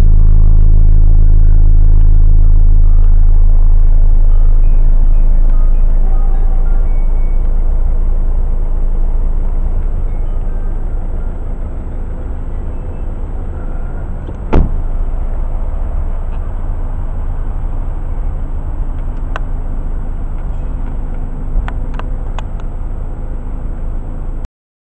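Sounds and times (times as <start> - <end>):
diesel engine idling: 0.0 - 24.5
car door slamming: 14.2 - 14.9.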